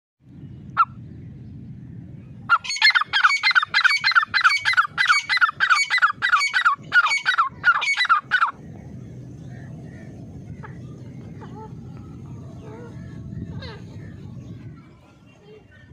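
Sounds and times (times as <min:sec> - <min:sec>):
bird calling harsh descending notes: 0:02.5 - 0:08.7.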